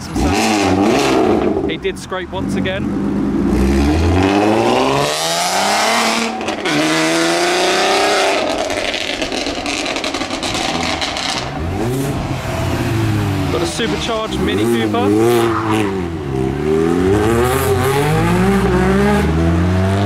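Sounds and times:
another car engine: 0:00.0 - 0:20.0
car engine accelerating hard: 0:00.0 - 0:20.0.

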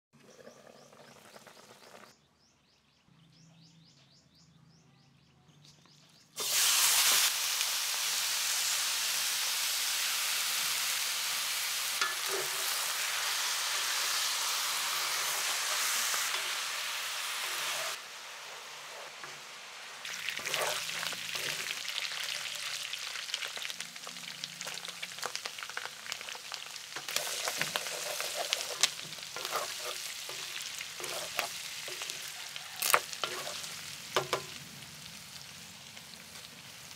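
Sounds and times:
meat sizzling in a pan: 0:06.4 - 0:36.9
wooden spoon scraping a pan: 0:20.3 - 0:21.8, 0:27.0 - 0:32.3, 0:32.9 - 0:34.4.

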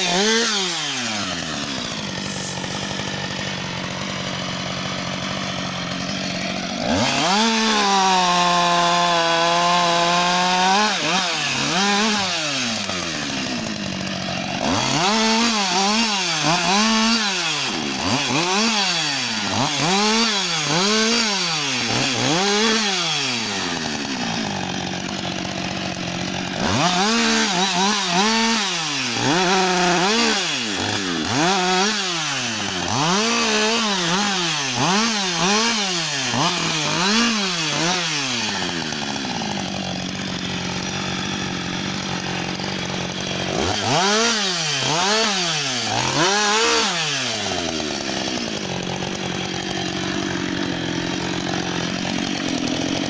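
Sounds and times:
chainsaw cutting logs revving: 0:00.0 - 0:53.0.

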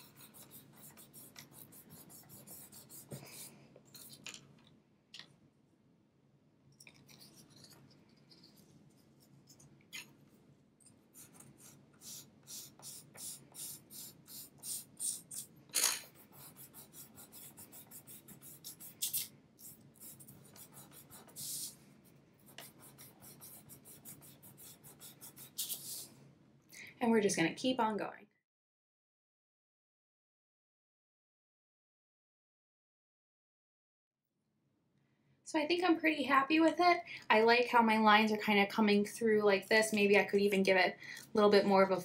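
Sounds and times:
charcoal pencil scratching on paper: 0:00.0 - 0:04.2, 0:11.2 - 0:15.5, 0:16.1 - 0:21.8, 0:22.4 - 0:26.1.

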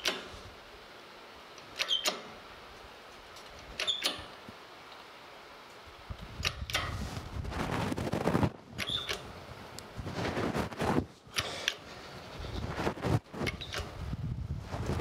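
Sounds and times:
metallic clicks with ring: 0:01.8 - 0:02.3, 0:03.8 - 0:04.4.

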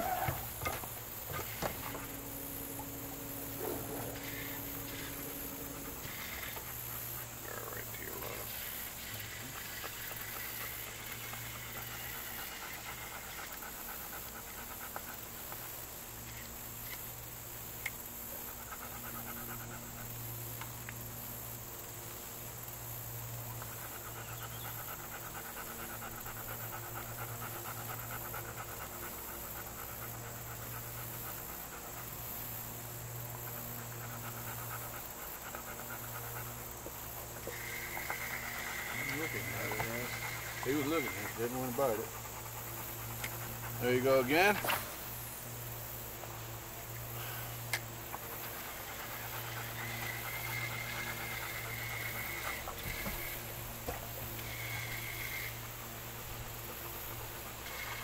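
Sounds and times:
fishing reel motor whine: 0:00.0 - 0:14.5, 0:37.4 - 0:46.1, 0:46.9 - 0:58.0
steady low hum: 0:00.0 - 0:58.0.

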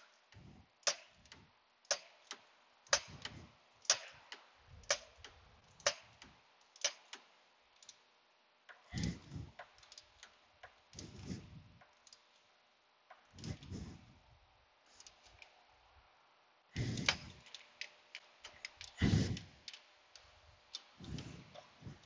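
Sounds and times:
soft rustle of handling: 0:08.8 - 0:22.0.

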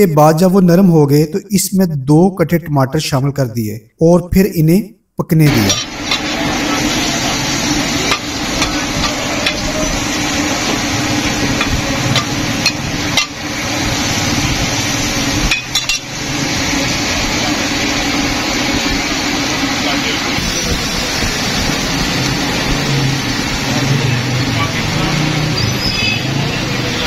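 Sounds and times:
metal scraper scraping griddle: 0:05.7 - 0:06.4
onions sizzling on a griddle: 0:05.7 - 0:24.0.

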